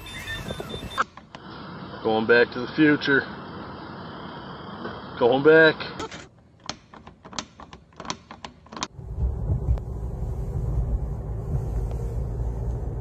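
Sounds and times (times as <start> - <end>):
car cabin low rumble: 8.9 - 13.0.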